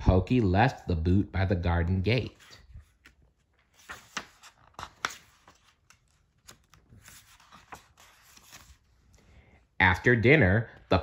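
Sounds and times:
book pages rustling: 2.2 - 9.3.

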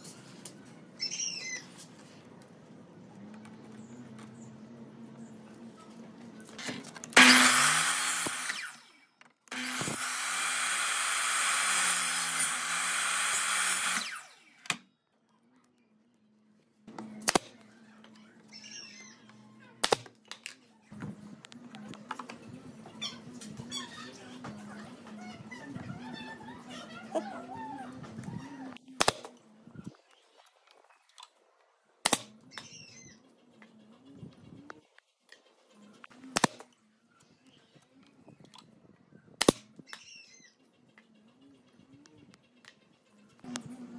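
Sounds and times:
miter saw cutting wood: 7.2 - 8.9, 9.5 - 14.6
nail gun shots: 17.2 - 17.5, 19.8 - 20.1, 29.0 - 29.3, 32.0 - 32.3, 39.4 - 39.7.

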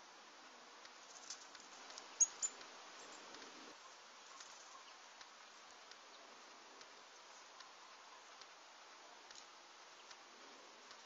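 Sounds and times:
steady hiss: 0.0 - 11.0
small birds calling: 1.0 - 8.5.

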